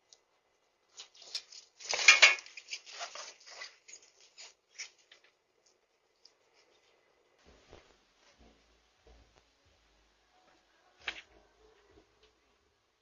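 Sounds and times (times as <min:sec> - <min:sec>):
bicycle clattering and rattling: 0:01.9 - 0:03.2.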